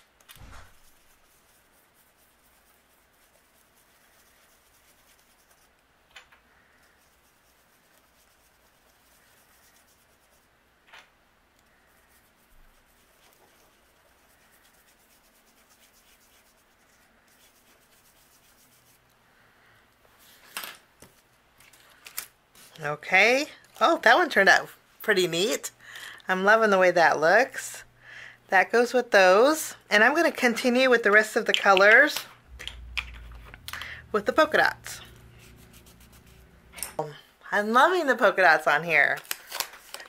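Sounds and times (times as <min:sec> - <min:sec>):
paper and plastic rustling: 0:00.0 - 0:01.2, 0:20.2 - 0:22.8, 0:39.0 - 0:40.0
brush rubbing on cardstock: 0:00.0 - 0:05.8, 0:06.6 - 0:10.5, 0:11.7 - 0:19.1, 0:32.8 - 0:36.7.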